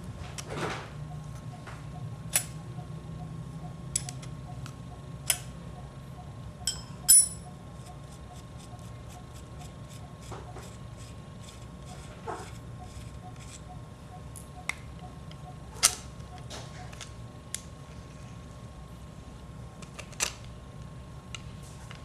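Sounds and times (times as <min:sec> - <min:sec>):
wrench clinking on metal nut: 0:06.7 - 0:07.4.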